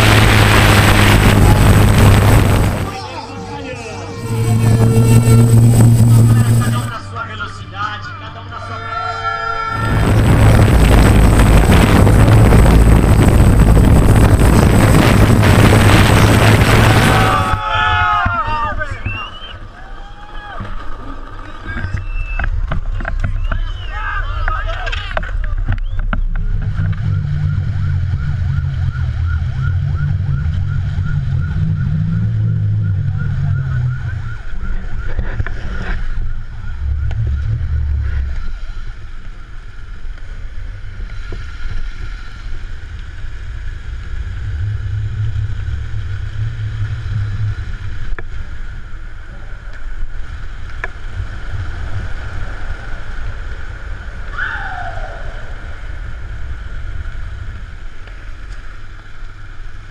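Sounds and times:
skateboard wheels rumbling on asphalt: 0.0s - 2.9s, 9.8s - 32.6s, 34.5s - 59.9s
wind buffeting microphone: 0.0s - 3.0s, 9.8s - 19.2s, 20.9s - 59.9s
high-pitched falling sound: 0.0s - 7.1s.

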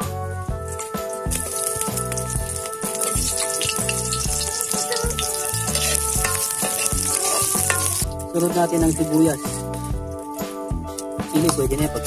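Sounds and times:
background music: 0.0s - 12.0s
garlic sizzling in oil: 0.6s - 9.6s
metal ladle stirring in wok: 0.7s - 9.2s.

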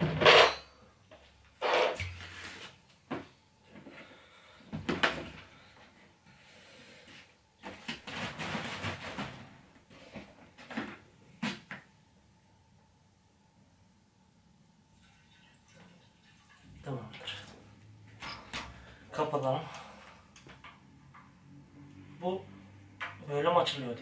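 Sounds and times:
rustling and scraping: 0.0s - 4.0s, 7.1s - 11.7s.

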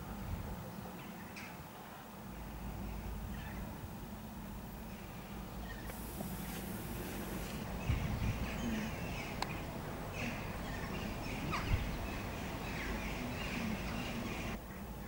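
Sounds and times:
low background rumble: 2.2s - 15.0s
birds calling: 4.9s - 14.6s.

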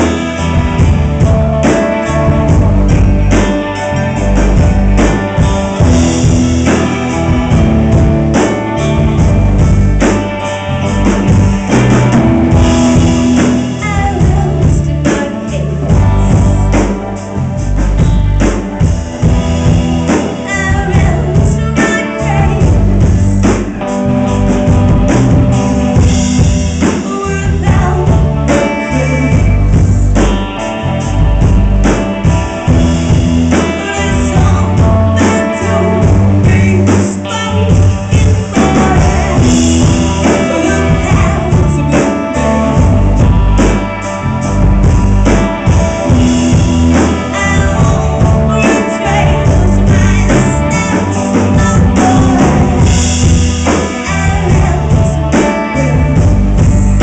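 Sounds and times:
rock band playing: 0.0s - 57.0s
woman singing: 12.8s - 17.0s, 20.1s - 23.3s, 26.8s - 30.4s, 33.5s - 43.5s, 46.4s - 57.0s.

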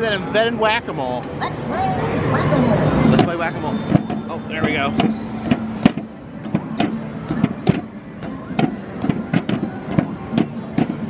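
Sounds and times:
arcade background noise: 0.0s - 11.0s
mallet hitting game moles: 3.2s - 11.0s.

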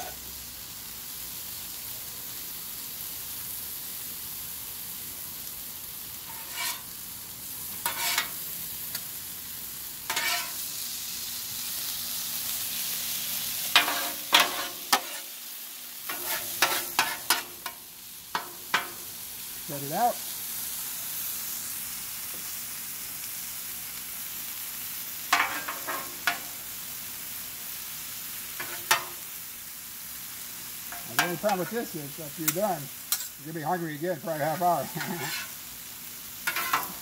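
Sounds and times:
vegetables sizzling on griddle: 0.0s - 37.0s
spatulas scraping griddle: 6.2s - 7.0s, 7.7s - 8.4s, 10.1s - 10.7s, 13.7s - 15.4s, 16.0s - 19.0s, 25.3s - 26.5s, 28.6s - 29.2s, 30.9s - 35.7s, 36.4s - 37.0s.

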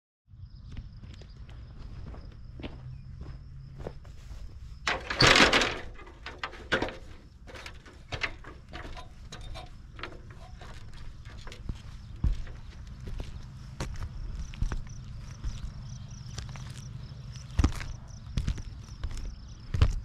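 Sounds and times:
footsteps on roof shingles: 1.2s - 20.0s
shoes knocking on ladder rungs: 4.8s - 13.3s
ladder rattling scrape: 4.8s - 13.4s.

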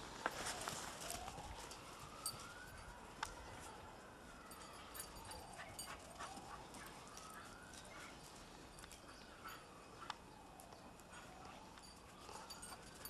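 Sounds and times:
dog paws crunching in snow: 0.0s - 9.6s.

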